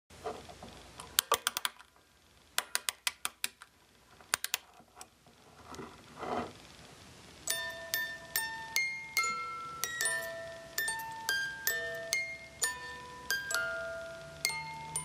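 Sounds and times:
keyboard typing clicks: 1.2 - 1.8
soft noise: 3.8 - 15.0.

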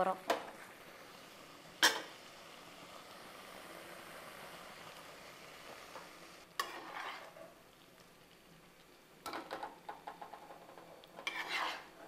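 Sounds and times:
curry sizzling in a pan: 0.0 - 12.0
metal spoon scraping a pan: 6.6 - 7.5, 9.3 - 12.0.

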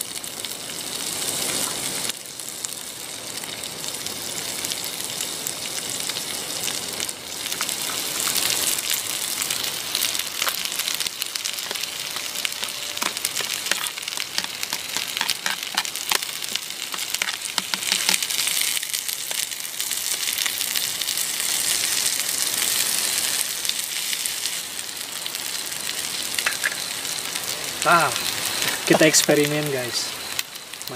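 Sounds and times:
food sizzling in a pan: 0.0 - 30.9.

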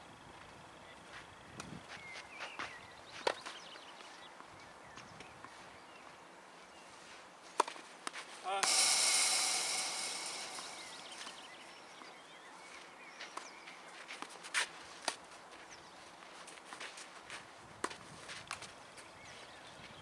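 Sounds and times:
hiss: 8.5 - 12.0.

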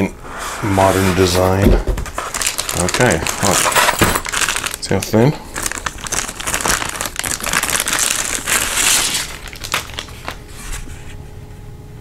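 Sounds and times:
plastic bag crinkling: 2.1 - 10.8.

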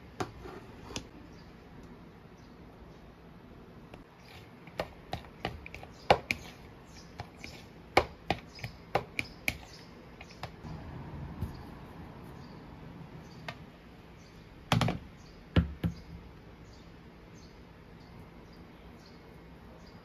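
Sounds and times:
spatula tapping plastic bowl: 7.2 - 10.6.

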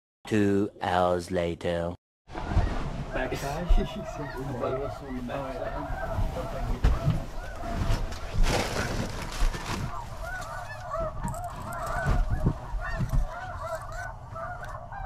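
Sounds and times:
snow geese calling: 2.4 - 15.0.

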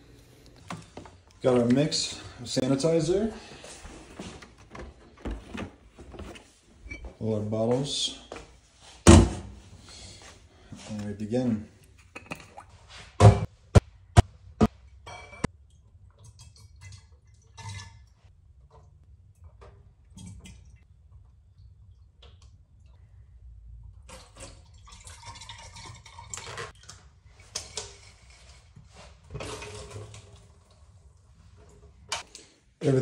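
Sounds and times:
glass bottles clinking: 12.1 - 12.6
liquid pouring and splashing: 15.6 - 18.8, 24.0 - 28.2.

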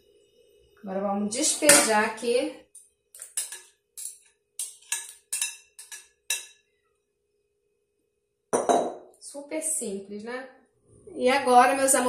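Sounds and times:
metal spoon clinking and scraping: 3.2 - 6.6.

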